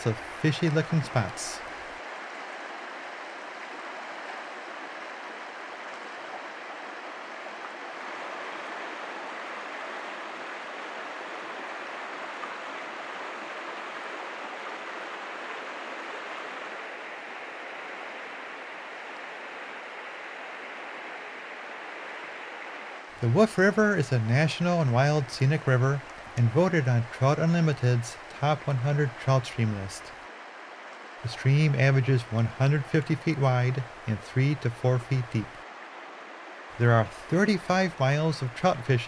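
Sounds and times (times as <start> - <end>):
river rushing over rocks: 0.0 - 34.8, 35.4 - 39.0.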